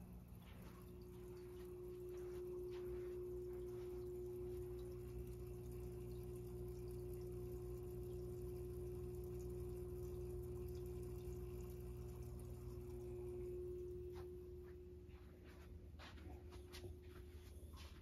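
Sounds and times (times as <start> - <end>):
water trickling: 0.0 - 15.0
aquarium pump humming: 0.0 - 18.0.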